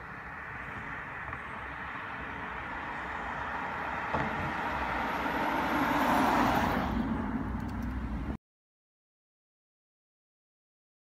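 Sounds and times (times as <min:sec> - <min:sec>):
car driving past: 0:00.3 - 0:07.9.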